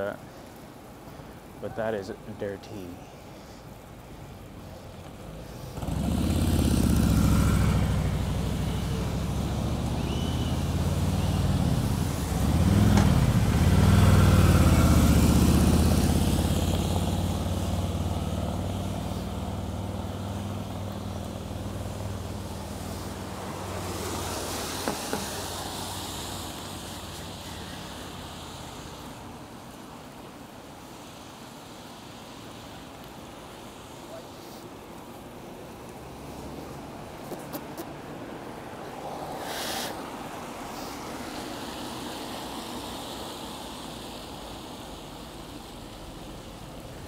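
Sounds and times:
vehicle engine drone: 4.7 - 29.1.

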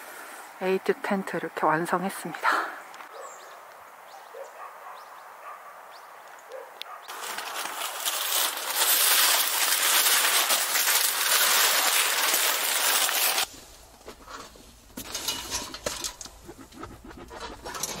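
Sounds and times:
fabric curtain rustling: 7.1 - 13.5.

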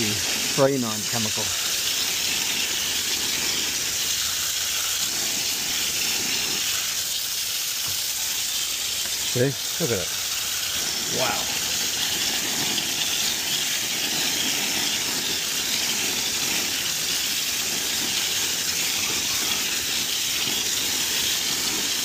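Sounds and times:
hose water splashing: 0.0 - 22.0.

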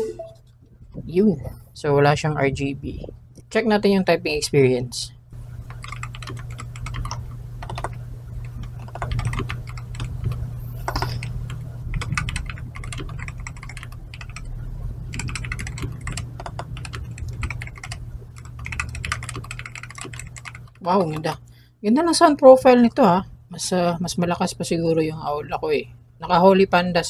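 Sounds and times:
fast typing on keyboard: 5.6 - 21.4.

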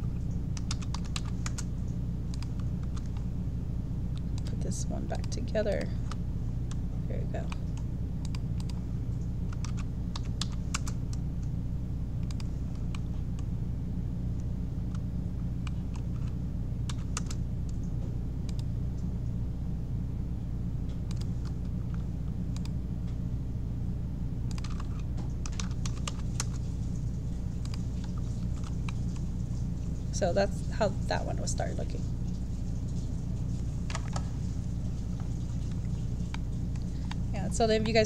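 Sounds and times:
computer keyboard typing: 0.0 - 1.7, 2.3 - 3.3, 9.5 - 11.2, 12.2 - 13.1, 15.6 - 17.4, 24.5 - 26.7
steady low hum: 0.0 - 38.0.

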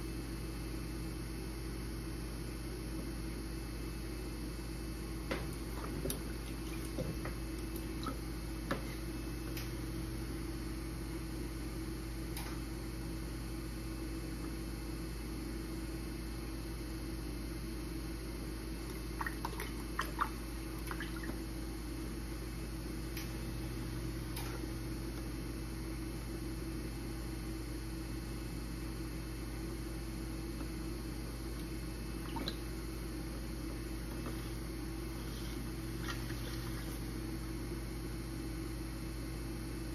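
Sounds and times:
pottery wheel humming: 0.0 - 39.9.

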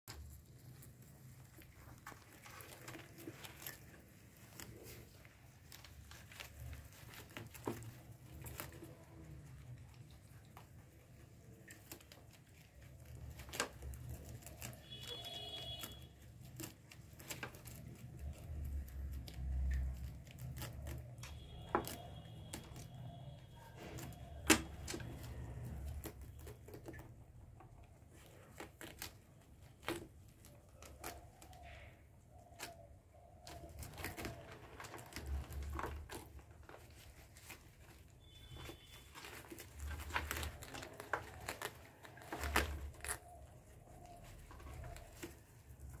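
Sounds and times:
rabbits nibbling leaves: 0.1 - 46.0.

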